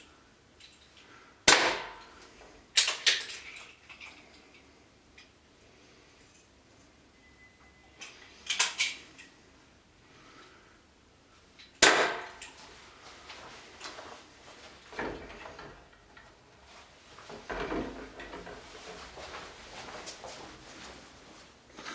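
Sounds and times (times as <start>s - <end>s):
airgun shot: 1.5s - 2.0s, 11.8s - 12.4s.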